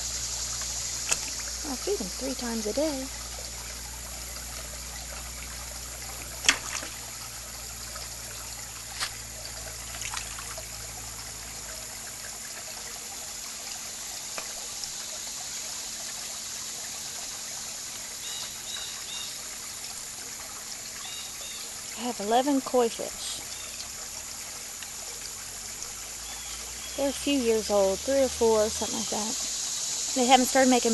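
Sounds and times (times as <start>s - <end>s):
fish splashing at water surface: 0.0s - 16.6s
water trickling: 0.0s - 30.9s.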